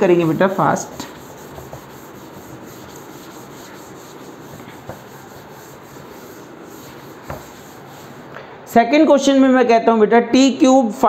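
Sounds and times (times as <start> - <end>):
duster rubbing chalkboard: 0.0 - 8.3.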